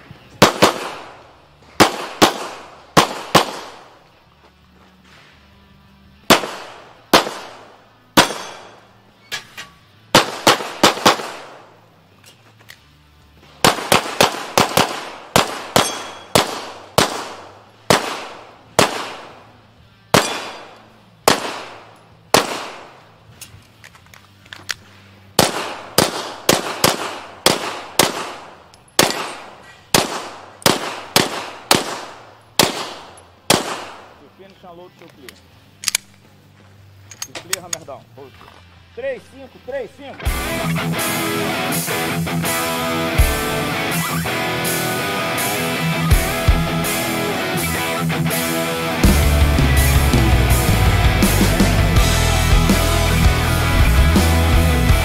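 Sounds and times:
rapid gunshots with echo: 13.6 - 19.4, 25.4 - 34.1
background music with low bass: 37.9 - 55.0.

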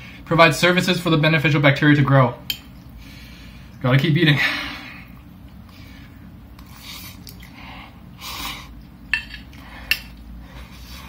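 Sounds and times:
eating sounds: 4.9 - 11.0.

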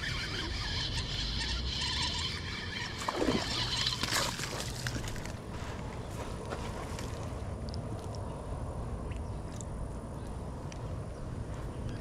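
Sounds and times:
fish splashing in water: 3.0 - 5.3.

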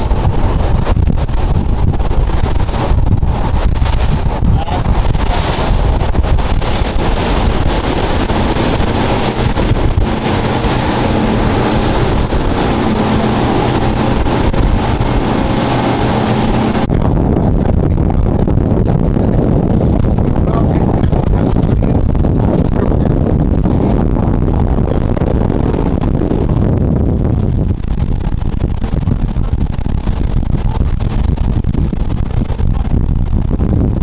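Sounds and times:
water noise from hull: 0.0 - 34.0
wind rushing over microphone: 0.0 - 34.0
outboard engines droning: 5.9 - 17.0.

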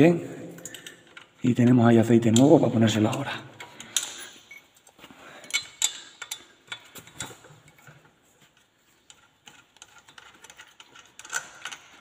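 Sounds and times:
metallic clicks of hand tools: 2.3 - 7.9.

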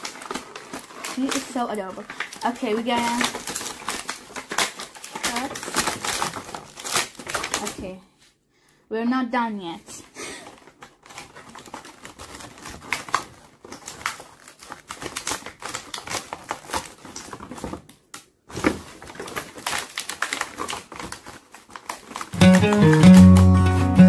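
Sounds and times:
scissors cutting plastic packaging: 0.0 - 7.9, 10.4 - 24.0
plastic crackling: 0.0 - 8.0, 9.9 - 24.0
music: 22.4 - 24.0.

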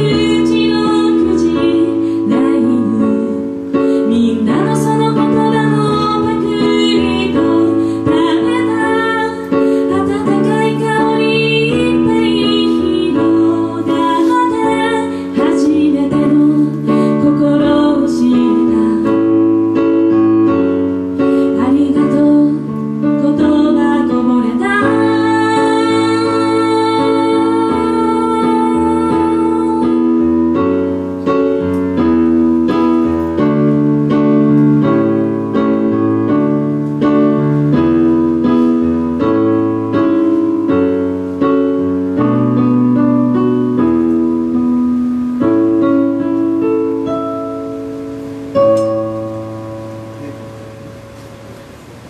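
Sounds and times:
woman singing: 0.0 - 20.7, 21.4 - 30.8
electronic keyboard piano chords: 0.0 - 52.0.

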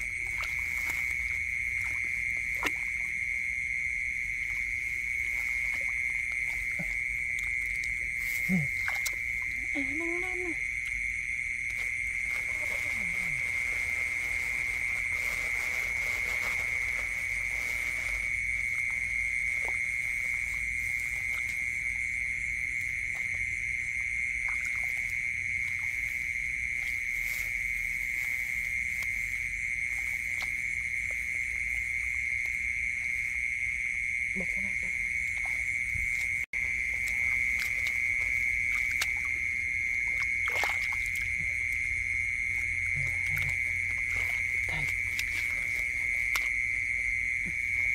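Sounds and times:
high-pitched night animal chorus: 0.0 - 47.9
hands splashing in muddy water: 35.2 - 47.9.

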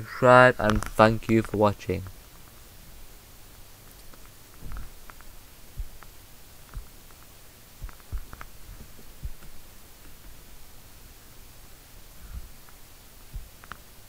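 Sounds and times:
steady low hum: 0.0 - 14.0
small clicks: 0.6 - 2.5, 3.9 - 10.2, 13.4 - 13.9
faint low thumps: 4.5 - 13.6.

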